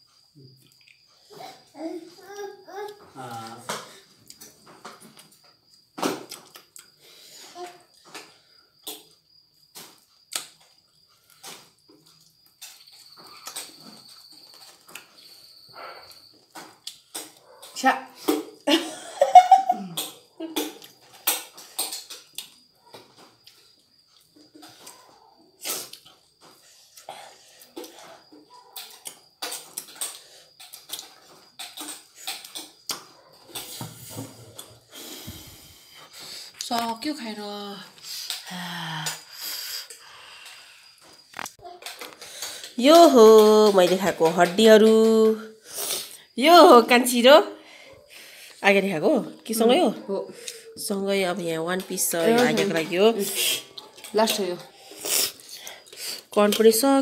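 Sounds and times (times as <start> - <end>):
chewing and wet mouth smacks: 0.5 - 1.0, 5.2 - 7.0, 20.0 - 22.7.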